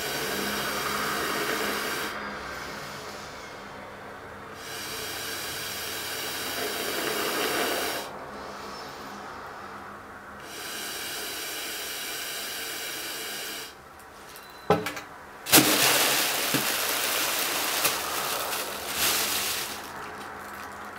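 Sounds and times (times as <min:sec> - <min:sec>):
air hissing: 0:00.0 - 0:02.2, 0:04.6 - 0:09.1, 0:10.4 - 0:13.8, 0:15.5 - 0:20.6
plastic bag crackling: 0:15.5 - 0:20.9.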